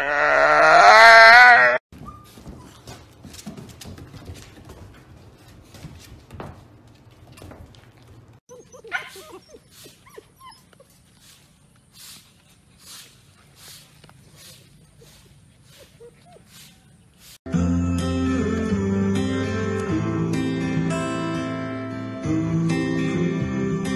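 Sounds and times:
scuffling and small knocks: 0:01.9 - 0:08.4
puppies whimpering and yipping: 0:08.5 - 0:11.4, 0:14.4 - 0:17.2.

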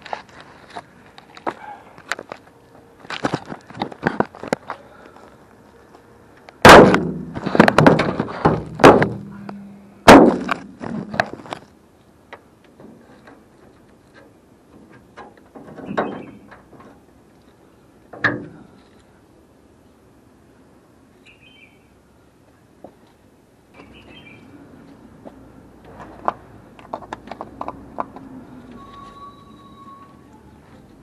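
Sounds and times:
hard knocks of handling: 0:06.6 - 0:09.5.

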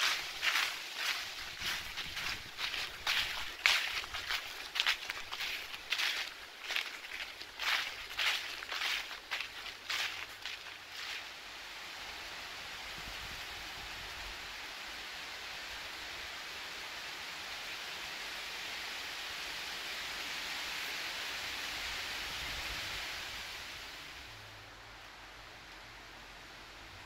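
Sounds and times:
footsteps on dry leaves: 0:00.0 - 0:11.4
wind rustling leaves: 0:00.0 - 0:27.0.

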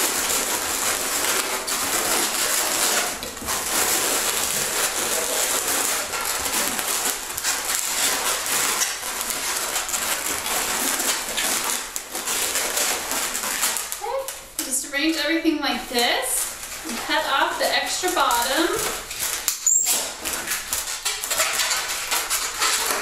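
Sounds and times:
balloons squeaking: 0:00.0 - 0:23.0.

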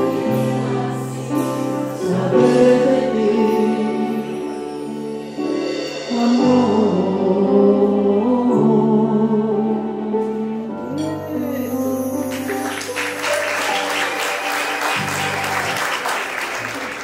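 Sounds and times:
live band playing: 0:00.0 - 0:09.4, 0:10.0 - 0:17.0
person singing: 0:00.0 - 0:12.1
audience applause and cheering: 0:12.2 - 0:17.0.

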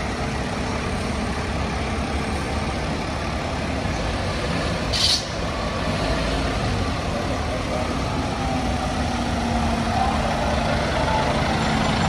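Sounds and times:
fire engine diesel running: 0:00.0 - 0:12.0
air brakes hissing: 0:04.9 - 0:05.4.

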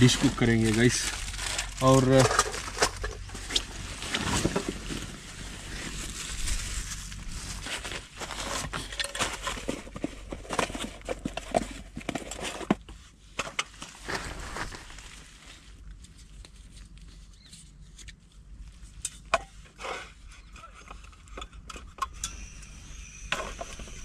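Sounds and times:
tent fabric flapping in wind: 0:00.0 - 0:10.0, 0:13.8 - 0:15.7
rustling of backpack: 0:00.0 - 0:11.0, 0:13.8 - 0:15.8.

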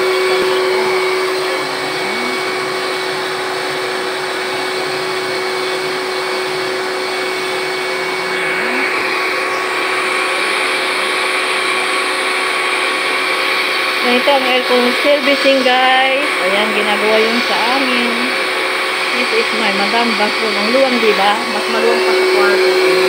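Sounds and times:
vacuum cleaner running: 0:00.0 - 0:23.0.

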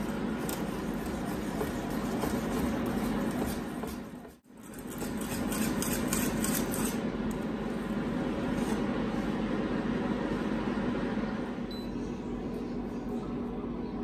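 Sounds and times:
whisk scraping a saucepan: 0:00.0 - 0:07.0
steady background hum: 0:00.0 - 0:14.0.

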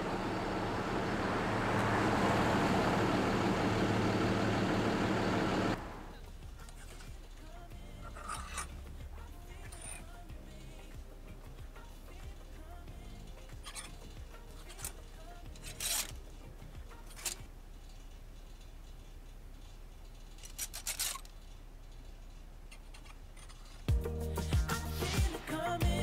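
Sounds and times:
clothes hangers rustling: 0:06.1 - 0:23.9.

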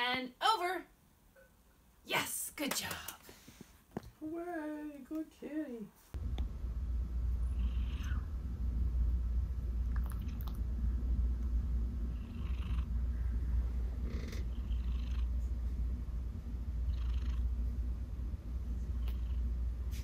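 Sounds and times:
cat purring: 0:07.3 - 0:08.3, 0:09.8 - 0:18.1, 0:18.7 - 0:19.7.

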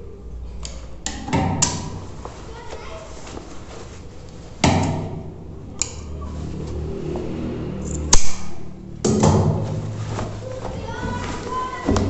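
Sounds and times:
cloth trousers rustling: 0:02.0 - 0:04.6, 0:09.5 - 0:12.0.

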